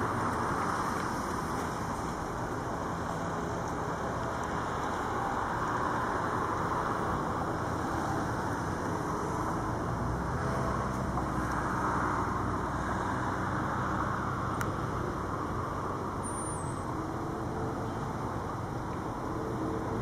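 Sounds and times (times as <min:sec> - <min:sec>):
distant engines droning: 0:00.0 - 0:20.0.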